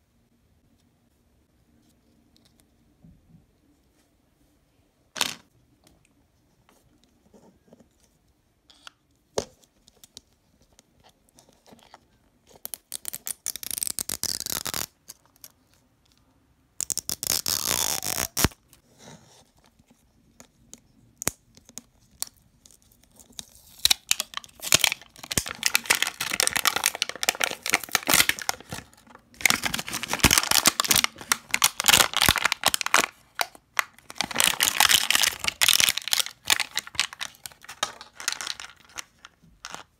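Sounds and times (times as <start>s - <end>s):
plastic wrapper crinkling: 22.2s - 39.9s.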